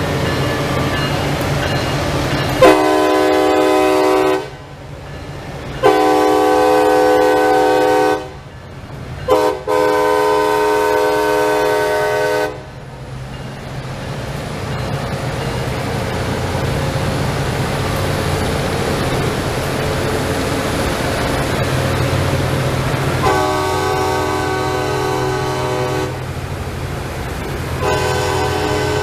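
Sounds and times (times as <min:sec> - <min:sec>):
train diesel engines rumbling: 0:00.0 - 0:29.0
multi-tone train horn: 0:02.6 - 0:04.8, 0:05.8 - 0:08.5, 0:09.2 - 0:12.8, 0:23.1 - 0:26.3, 0:27.8 - 0:29.0.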